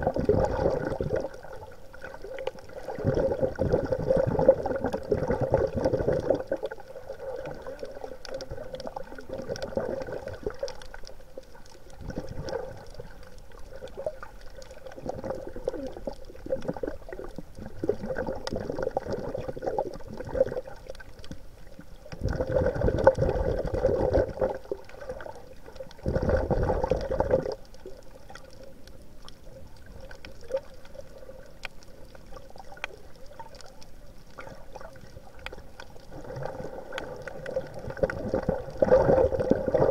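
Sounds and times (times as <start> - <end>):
underwater bubbling and gurgling: 0.0 - 39.9
faint clicks: 27.2 - 36.1, 36.9 - 38.5.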